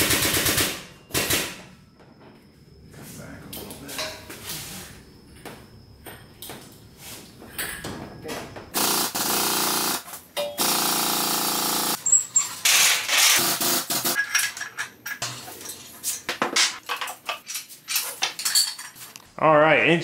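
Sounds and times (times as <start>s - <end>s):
steady machine noise: 8.8s - 12.0s.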